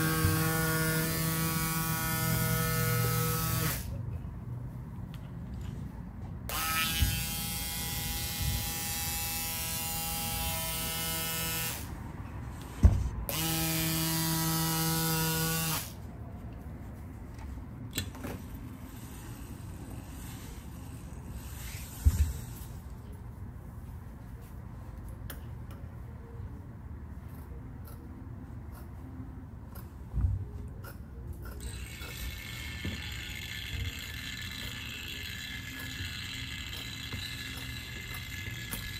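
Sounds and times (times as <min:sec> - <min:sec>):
small electric motor running: 0:00.0 - 0:03.9, 0:06.5 - 0:11.9, 0:13.3 - 0:16.0, 0:18.9 - 0:22.8, 0:31.6 - 0:38.9.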